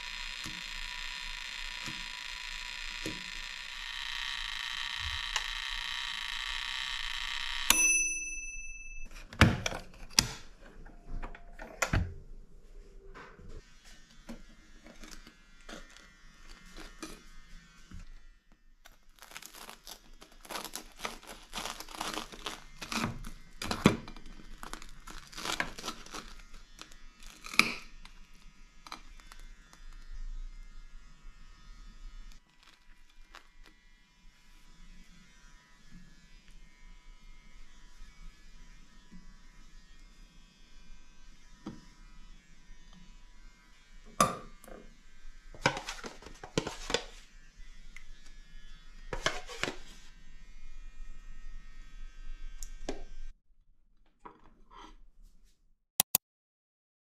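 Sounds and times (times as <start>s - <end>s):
knife sawing through toasted sandwich: 19.2s - 23.4s.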